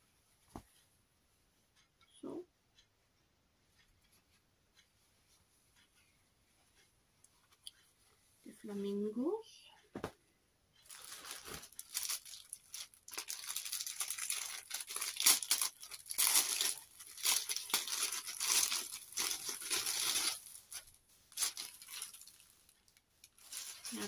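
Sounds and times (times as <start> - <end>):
plastic packaging crinkling: 10.8 - 24.0.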